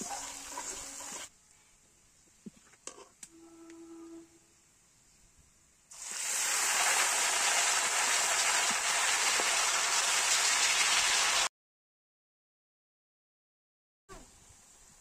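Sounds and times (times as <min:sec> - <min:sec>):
food sizzling in hot oil: 0:00.0 - 0:01.3, 0:05.9 - 0:11.5.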